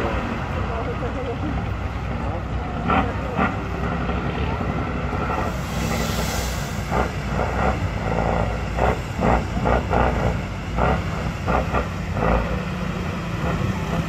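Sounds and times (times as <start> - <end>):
diesel truck engine revving: 0.0 - 14.0.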